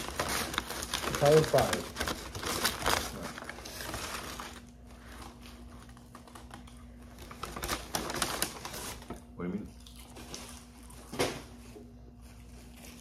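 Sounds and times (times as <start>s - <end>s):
paper bag rustling and crinkling: 0.0s - 9.3s.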